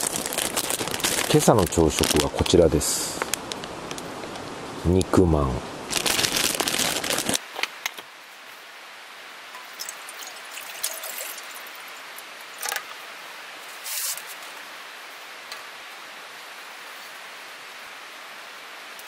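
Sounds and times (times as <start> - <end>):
mountain stream rushing: 7.3 - 19.0.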